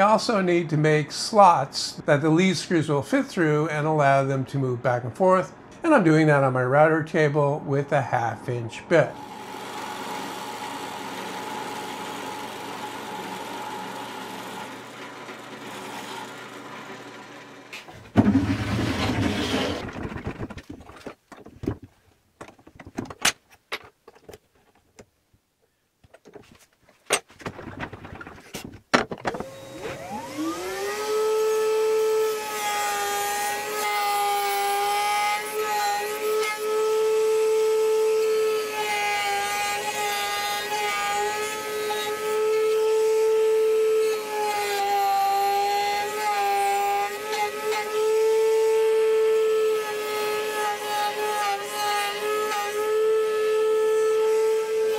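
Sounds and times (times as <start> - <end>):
router whining: 9.1 - 20.6, 29.0 - 54.9
drill press running: 9.2 - 19.9
knocks and clicks: 19.7 - 25.1, 26.0 - 29.5.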